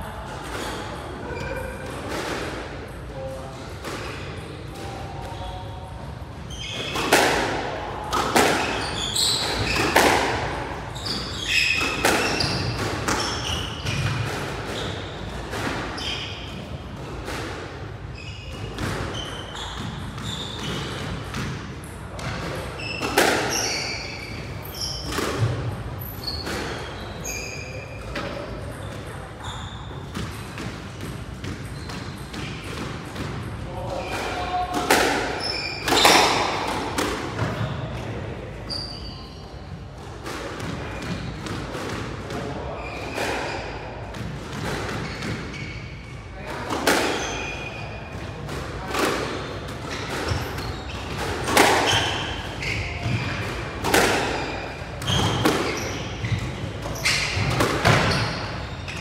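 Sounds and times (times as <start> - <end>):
squash ball hits: 6.7 - 17.7, 18.4 - 26.9, 30.0 - 38.0, 46.5 - 59.0
shoes squeaking on wooden floor: 10.9 - 15.2, 18.2 - 21.0, 22.8 - 32.7, 45.0 - 46.0, 49.8 - 59.0.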